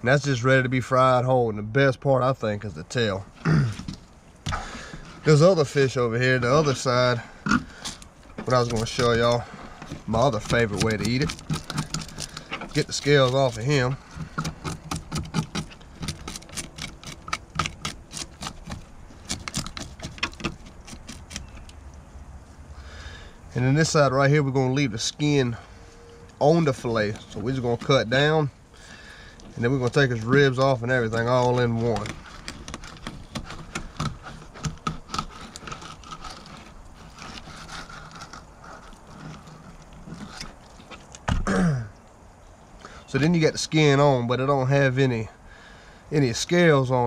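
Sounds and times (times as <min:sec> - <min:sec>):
knife scraping fish scales: 0:07.6 - 0:21.7, 0:29.6 - 0:40.9
knife clicking and scraping on bones: 0:10.2 - 0:21.8.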